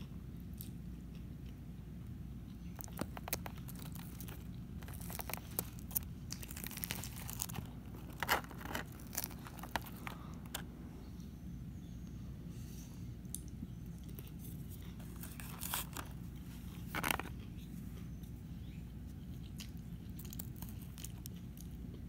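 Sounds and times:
fork crunching lettuce in plastic container: 0:02.6 - 0:10.7, 0:14.1 - 0:17.8.

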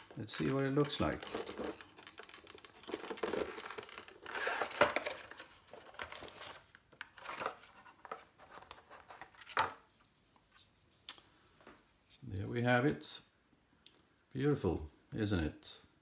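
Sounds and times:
cardboard and plastic rustling: 0:00.0 - 0:09.6.

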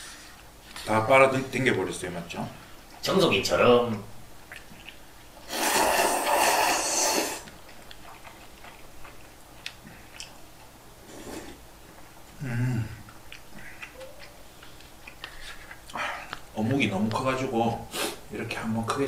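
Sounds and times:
person slurping noodles: 0:05.5 - 0:07.5, 0:11.0 - 0:11.6.

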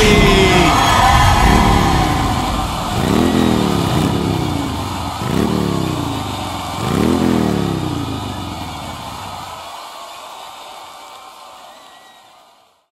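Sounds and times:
motorcycle engine revving: 0:00.3 - 0:09.6.

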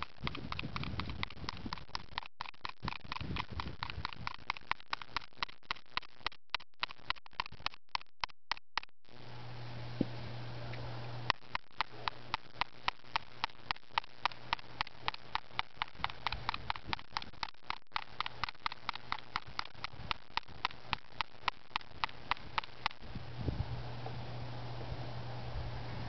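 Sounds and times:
key scratching screen protector: 0:00.0 - 0:09.0, 0:11.3 - 0:23.0.

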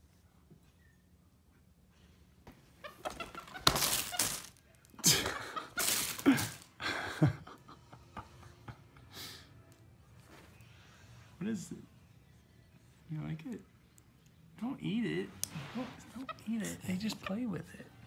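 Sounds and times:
box packaging crinkling and knocking: 0:03.5 - 0:04.6.

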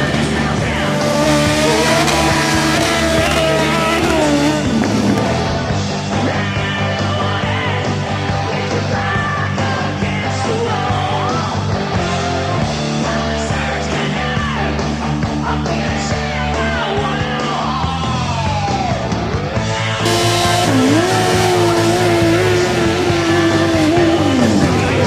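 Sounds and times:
rock song with singing: 0:00.0 - 0:25.0.

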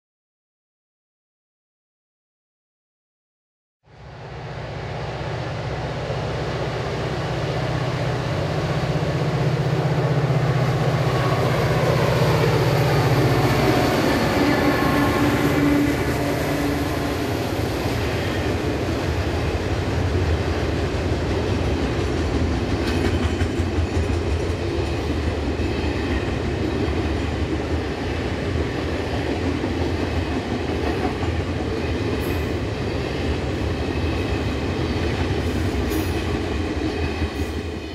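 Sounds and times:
diesel locomotive engine drone: 0:03.8 - 0:37.9
wheels clacking on rails: 0:08.8 - 0:37.9.

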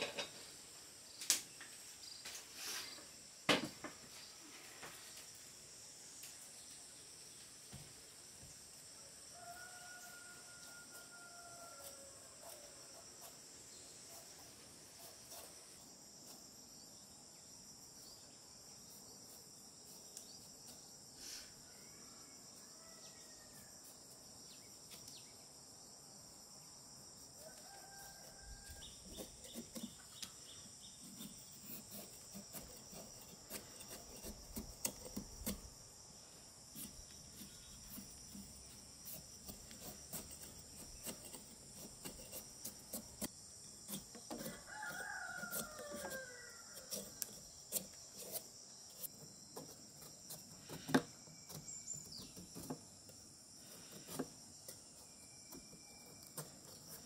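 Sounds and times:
crickets chirping: 0:00.0 - 0:57.0
rooster crowing: 0:09.0 - 0:13.0, 0:21.6 - 0:23.6, 0:27.4 - 0:29.0, 0:44.4 - 0:47.3
cleaver scraping gourd skin: 0:09.4 - 0:16.6, 0:27.3 - 0:35.8, 0:36.7 - 0:57.0.

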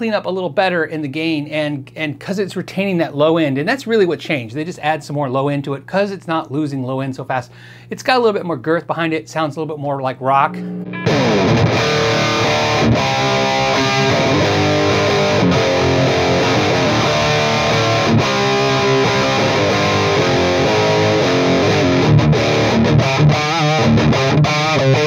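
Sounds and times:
distorted electric guitar: 0:10.5 - 0:25.0.

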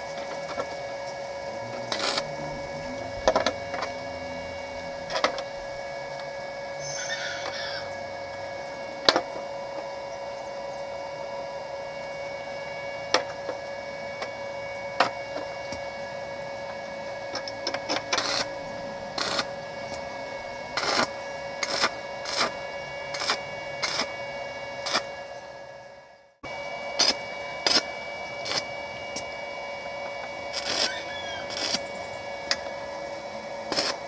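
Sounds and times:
steady hum: 0:00.0 - 0:34.0
arc welding bursts: 0:00.8 - 0:07.9, 0:16.1 - 0:25.6, 0:26.9 - 0:34.0.

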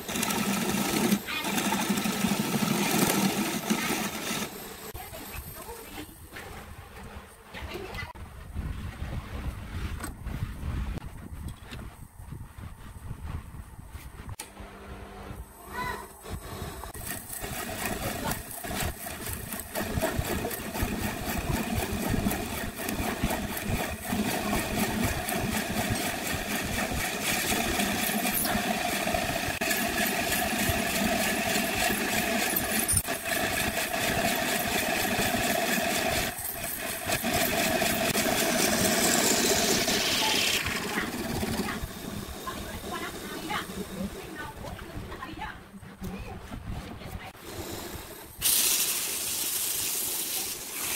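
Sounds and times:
drill bit boring into wood: 0:00.0 - 0:04.9, 0:16.9 - 0:44.2
wood lathe running: 0:00.0 - 0:05.0, 0:16.5 - 0:44.8.

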